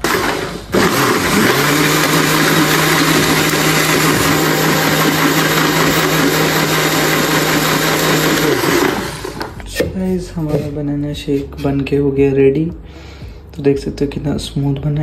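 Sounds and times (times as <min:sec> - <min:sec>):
mixer grinder motor humming: 0:00.0 - 0:09.7.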